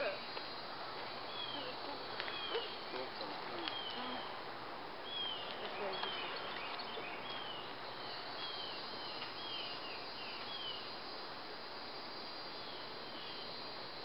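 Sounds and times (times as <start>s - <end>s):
high-pitched insect drone: 7.6s - 14.0s.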